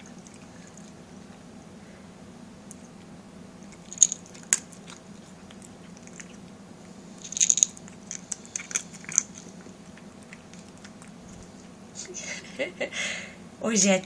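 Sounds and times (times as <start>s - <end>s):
cat crunching dry kibble: 2.7s - 11.8s.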